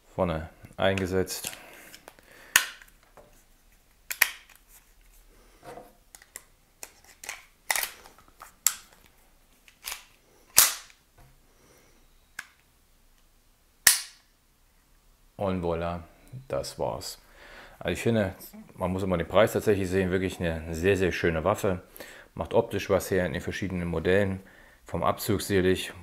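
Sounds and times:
pistol metallic clicks: 4.1 - 4.6, 9.8 - 11.0, 13.8 - 14.3.

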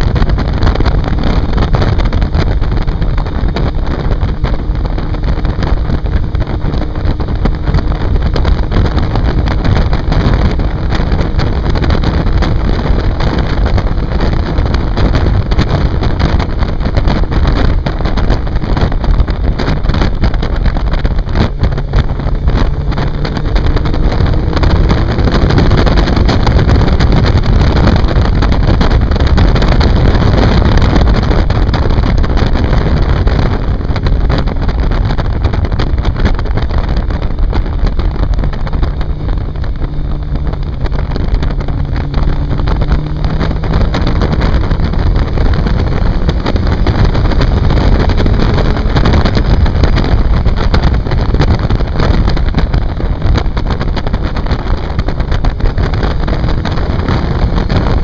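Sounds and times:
motorcycle engine running: 0.0 - 58.0
wind buffeting microphone: 0.0 - 58.0.

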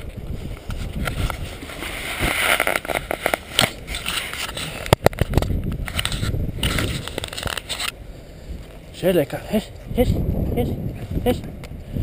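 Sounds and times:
dry grass rustling against clothing: 0.0 - 9.0.

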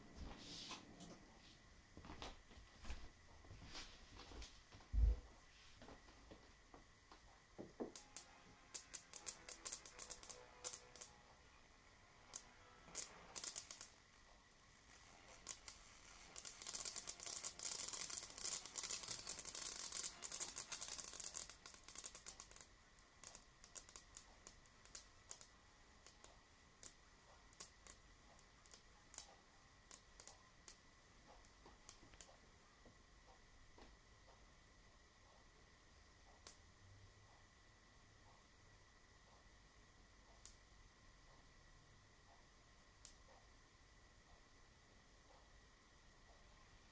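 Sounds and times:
high-voltage sparks crackling: 7.9 - 30.8.

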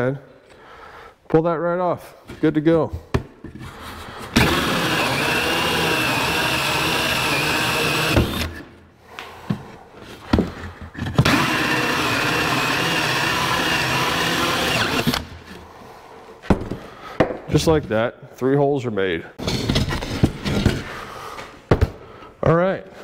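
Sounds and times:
drill with hole saw cutting wood: 4.4 - 8.6, 11.2 - 15.3.

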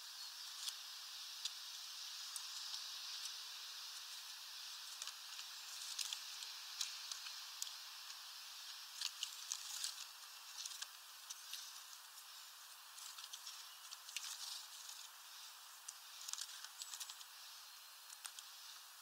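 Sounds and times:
steady hiss: 0.0 - 19.0
birds pecking seeds: 0.2 - 19.0.

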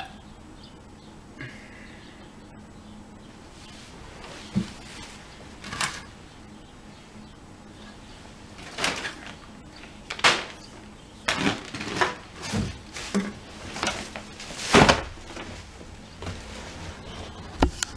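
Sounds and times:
plastic bag rustling: 3.5 - 6.2, 8.3 - 17.6
knocks and rustling: 4.2 - 6.2, 8.5 - 17.9.

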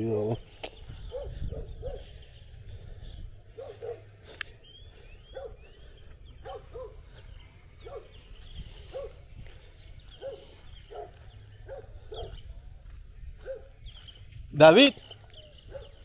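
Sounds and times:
dog barking: 1.1 - 2.1, 3.5 - 4.1, 5.3 - 5.8, 6.4 - 7.0, 7.8 - 8.2, 8.9 - 9.2, 10.2 - 12.4, 13.4 - 13.8, 15.6 - 16.0.

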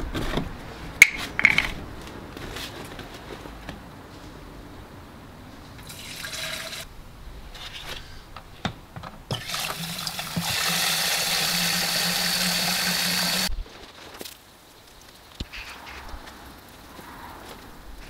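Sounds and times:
handling knocks and clicks: 0.0 - 3.9
tap water running into tank: 5.8 - 6.8, 9.3 - 13.5.

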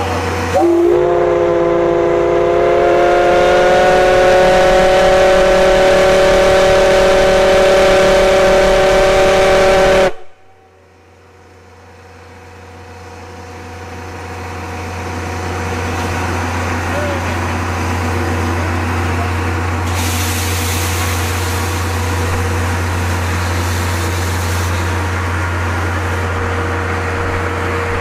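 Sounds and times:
low rumbling sound: 0.0 - 11.5
steam locomotive chime whistle: 0.4 - 10.7.

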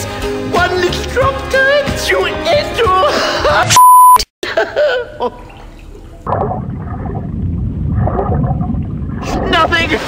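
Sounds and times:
churning gurgling water: 5.2 - 10.0.

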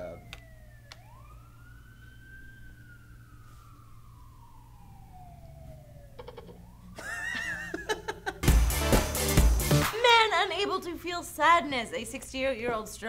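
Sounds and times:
police siren wailing: 0.0 - 9.2.

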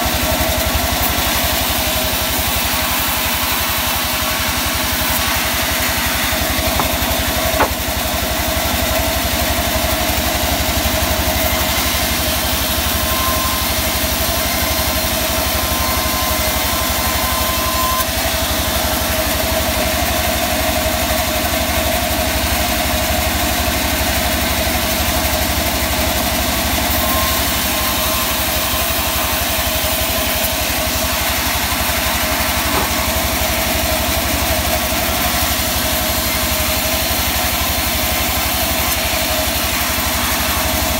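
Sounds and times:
band saw whining: 0.0 - 40.9
short knock: 6.7 - 7.8, 32.7 - 33.1.

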